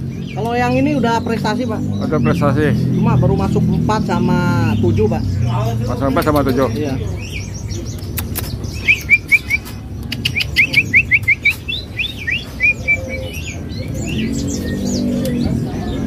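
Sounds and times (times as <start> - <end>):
songbird chirping: 0.0 - 16.0
sharp clicks: 7.9 - 11.7.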